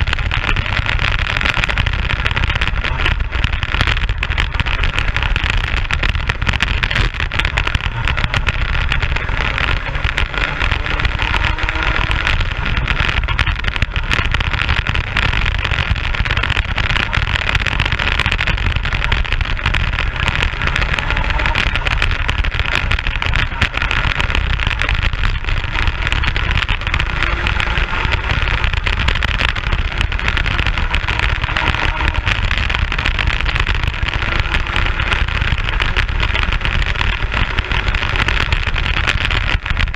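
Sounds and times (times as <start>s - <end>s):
kart engine running: 0.0s - 39.9s
wind rumble on microphone: 0.0s - 39.9s.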